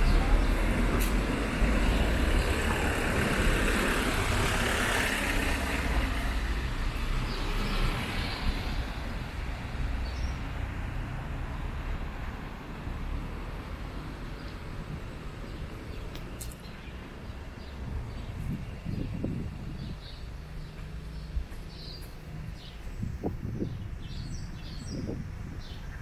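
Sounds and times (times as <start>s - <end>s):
car passing by: 0.0s - 14.0s.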